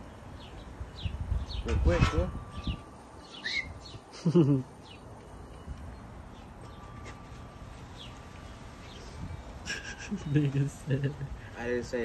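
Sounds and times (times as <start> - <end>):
faint high bird chirps: 0.4 - 7.3.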